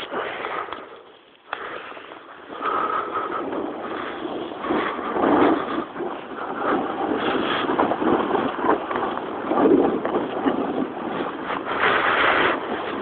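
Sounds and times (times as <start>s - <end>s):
snowboard sliding over snow: 0.0s - 13.0s
wind buffeting microphone: 0.0s - 13.0s.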